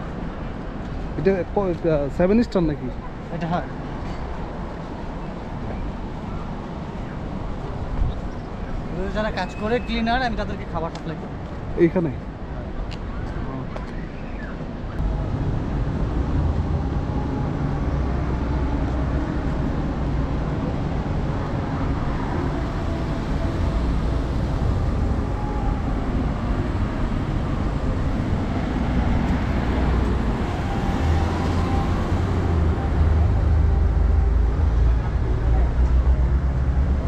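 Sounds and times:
cars driving past: 0:15.0 - 0:37.0.

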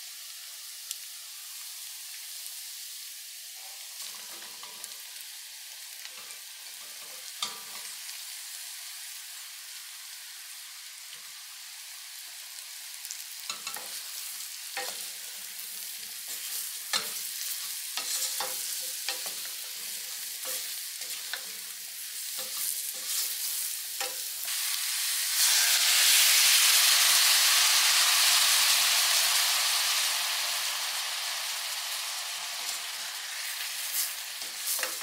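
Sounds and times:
mushrooms sizzling in a pan: 0:00.0 - 0:35.0
wooden spatula scraping a pan: 0:16.2 - 0:21.5, 0:22.2 - 0:24.2.

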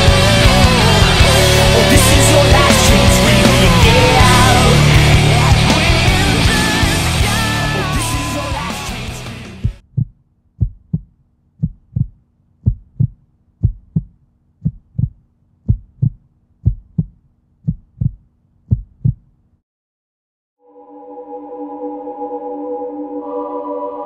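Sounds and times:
heartbeat double thumps: 0:09.6 - 0:19.3.

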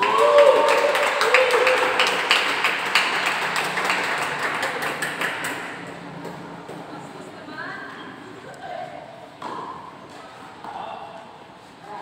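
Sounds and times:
hand clapping: 0:00.0 - 0:06.4.

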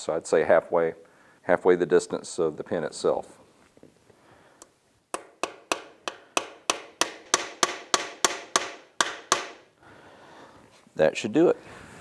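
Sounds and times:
hammer tapping metal pin: 0:05.1 - 0:09.7.

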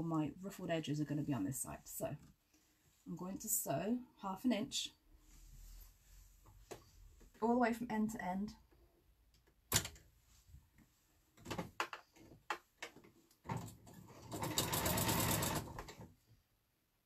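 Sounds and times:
sewing machine clicks and knocks: 0:11.4 - 0:16.1
sewing machine stitching: 0:13.5 - 0:16.1.

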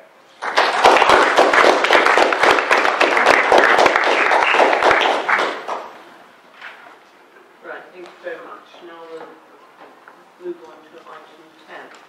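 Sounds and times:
crowd applauding: 0:00.4 - 0:06.0.

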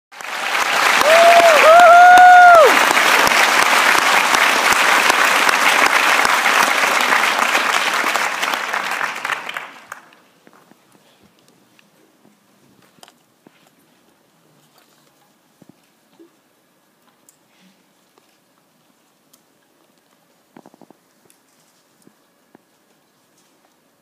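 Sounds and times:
audience applauding: 0:00.1 - 0:10.2
person cheering: 0:01.0 - 0:02.8.

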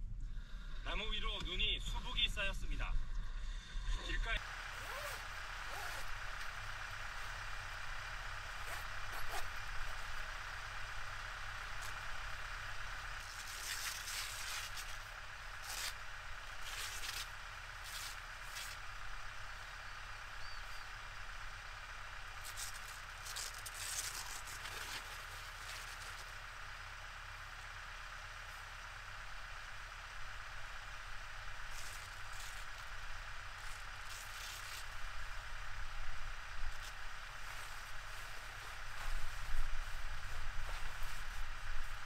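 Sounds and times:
steady low hum: 0:00.0 - 0:42.0
canvas awning rustling and flapping: 0:04.7 - 0:07.4, 0:08.5 - 0:10.3, 0:36.7 - 0:42.0.

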